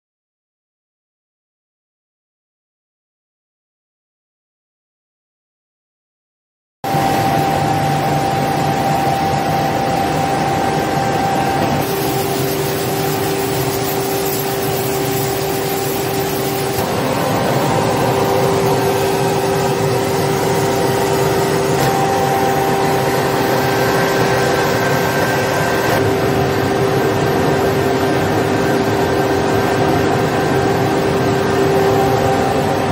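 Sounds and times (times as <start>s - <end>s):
steady hum: 6.9s - 32.9s
egg washing machine whirring: 7.1s - 32.9s.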